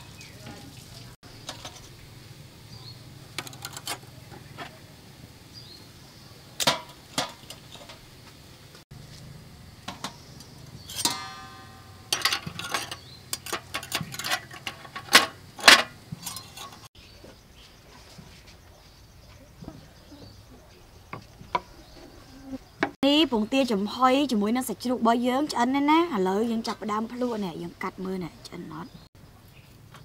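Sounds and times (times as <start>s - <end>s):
ringing metallic clink: 10.8s - 13.1s
metal tongs clinking on bowls: 10.8s - 16.9s.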